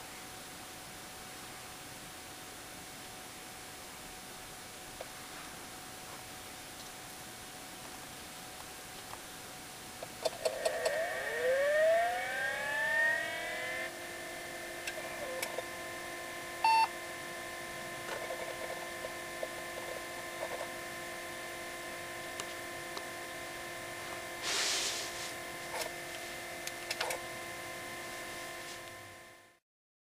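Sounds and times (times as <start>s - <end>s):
laptop whine: 3.2s - 29.6s
burst of noise: 24.4s - 25.3s.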